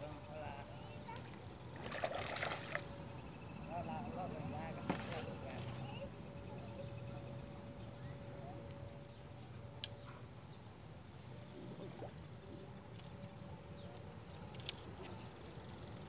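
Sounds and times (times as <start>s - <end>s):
birds calling: 0.0s - 12.8s.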